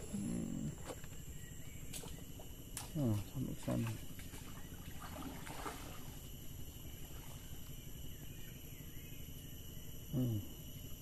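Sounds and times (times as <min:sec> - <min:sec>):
high insect drone: 0:00.0 - 0:11.0.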